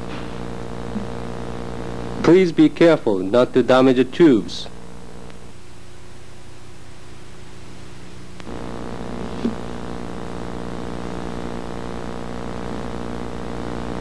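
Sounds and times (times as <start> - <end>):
buzzing hum: 0.0 - 14.0
click: 8.4 - 8.6.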